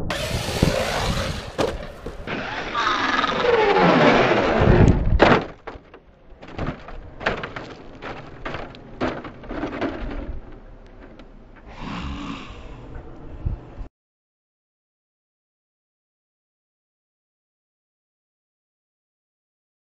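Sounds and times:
electric motor whining: 0.0s - 4.8s
knocks and thumps: 0.1s - 2.3s, 4.8s - 11.2s
toy truck landing thud: 0.1s - 2.4s, 4.2s - 10.4s.

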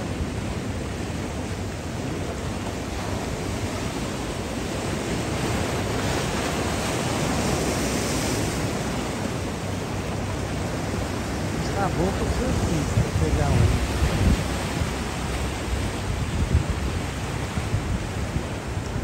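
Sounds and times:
surf breaking over rocks: 0.0s - 19.0s.

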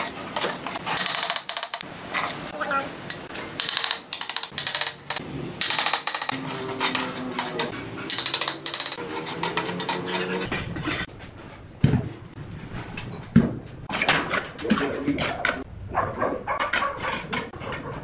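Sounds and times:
trowel scraping mortar: 5.8s - 11.1s.

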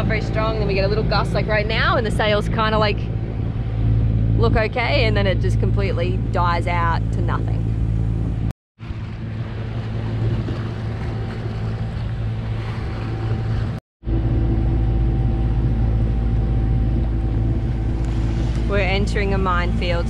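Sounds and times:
boat engine humming: 0.0s - 20.0s
wind and water rushing: 7.7s - 13.8s, 17.4s - 20.0s.

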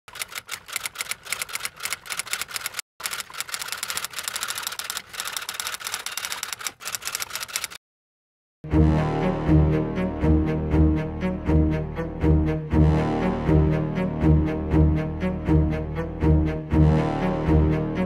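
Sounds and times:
typewriter keys clicking: 0.1s - 7.8s
low bowed-string music: 8.7s - 18.0s.

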